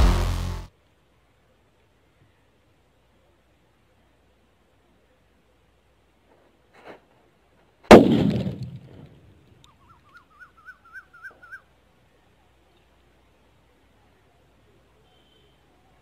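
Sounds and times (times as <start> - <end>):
firecracker bang: 7.9 - 9.1.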